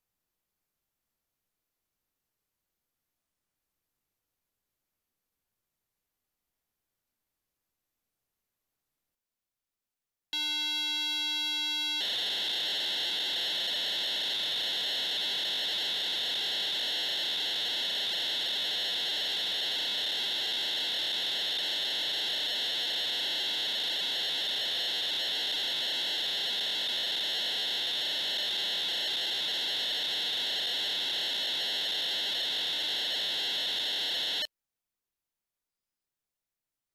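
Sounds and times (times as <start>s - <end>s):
steady high hiss of noise: 12.0s - 34.5s.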